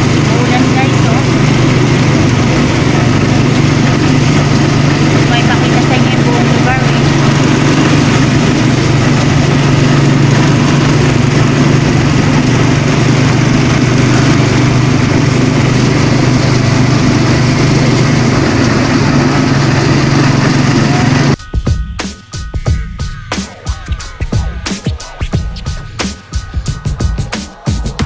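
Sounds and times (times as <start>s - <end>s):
small engine running: 0.0s - 21.4s.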